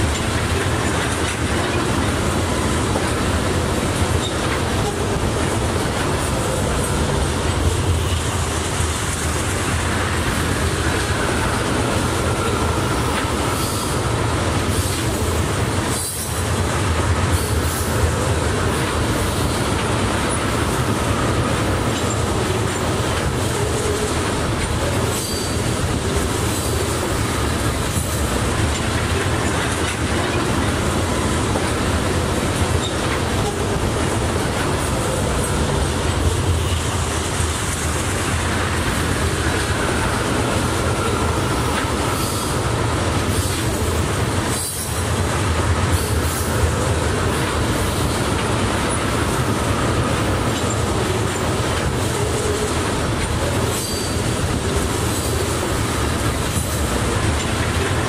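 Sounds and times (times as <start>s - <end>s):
train wheels rumbling on rail: 0.0s - 58.0s
wheels clacking over rail joints: 0.0s - 58.0s
faint high wheel squeal: 25.0s - 25.7s, 53.7s - 54.3s.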